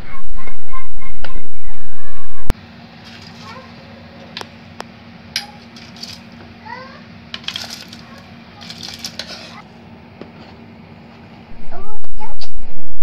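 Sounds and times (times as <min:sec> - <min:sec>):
steady low hum: 0:00.0 - 0:13.0
metal ladle scraping a pot: 0:08.6 - 0:09.6.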